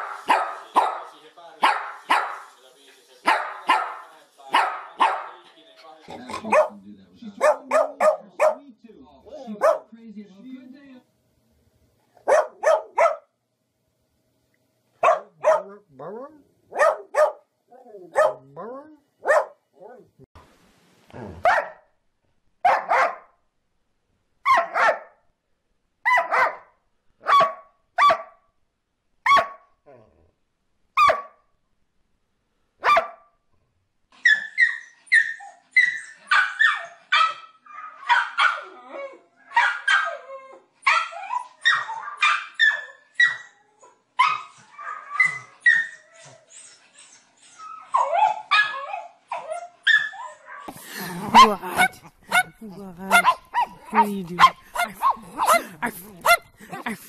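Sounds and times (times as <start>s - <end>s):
dog barking: 0.0s - 2.5s, 3.2s - 5.4s, 6.3s - 6.8s, 7.4s - 8.6s, 9.3s - 9.9s, 12.2s - 13.3s, 15.0s - 15.8s, 16.7s - 17.5s, 18.1s - 18.5s, 19.2s - 19.6s, 21.4s - 21.9s, 22.6s - 23.4s, 24.4s - 25.2s, 26.0s - 28.4s, 29.2s - 29.7s, 31.0s - 31.4s, 32.8s - 33.3s, 36.3s - 38.7s, 39.5s - 40.2s, 40.9s - 43.4s, 49.9s - 57.0s
small dog yipping: 31.0s - 31.3s, 34.2s - 38.8s, 39.5s - 50.7s.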